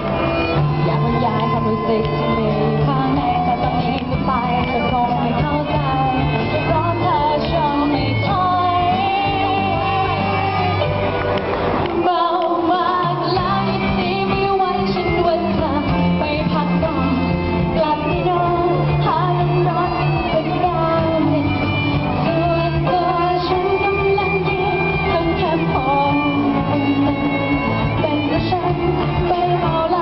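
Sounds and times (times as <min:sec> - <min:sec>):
pop-rock band playing: 0:00.0 - 0:30.0
girl singing lead: 0:00.2 - 0:11.2, 0:11.8 - 0:30.0.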